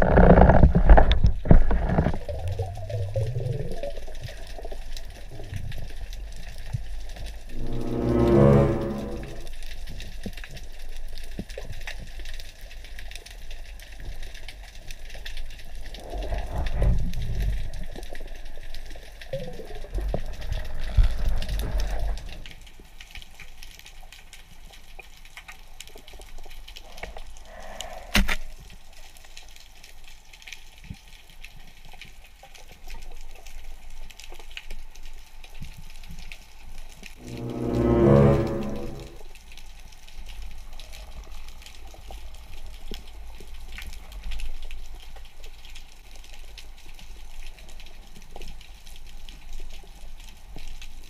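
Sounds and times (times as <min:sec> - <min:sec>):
underwater rumble of moving water: 0:00.0 - 0:24.6, 0:36.4 - 0:50.8
fine underwater crackling: 0:00.0 - 0:51.0.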